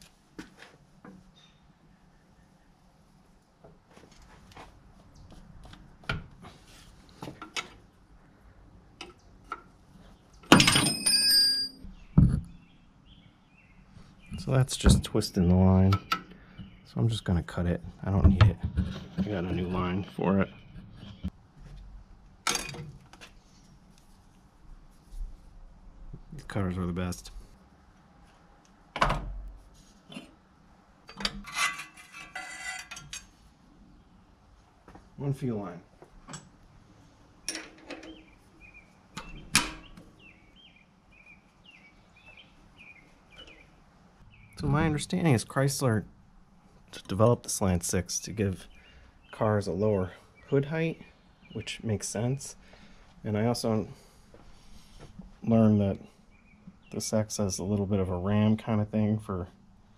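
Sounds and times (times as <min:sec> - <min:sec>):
metal fuel line clinking: 0:10.5 - 0:12.1
metallic clank with ringing: 0:10.6 - 0:11.9.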